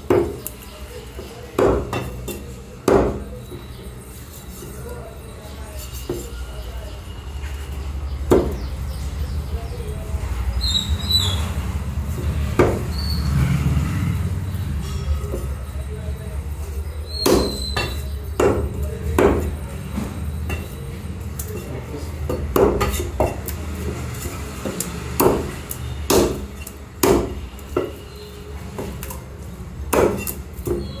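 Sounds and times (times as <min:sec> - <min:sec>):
cleaver chopping on wooden block: 0:08.3 - 0:08.7, 0:17.2 - 0:19.5, 0:22.3 - 0:23.6, 0:24.6 - 0:28.0, 0:29.9 - 0:30.9
high-pitched squeak: 0:14.8 - 0:18.2, 0:30.6 - 0:31.0.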